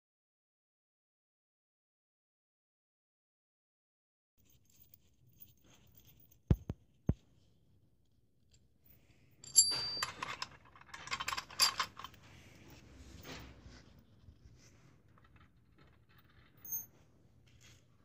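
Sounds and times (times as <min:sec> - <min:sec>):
metallic ring: 0:09.4 - 0:10.2, 0:16.6 - 0:16.9
steel parts clinking: 0:09.4 - 0:12.8.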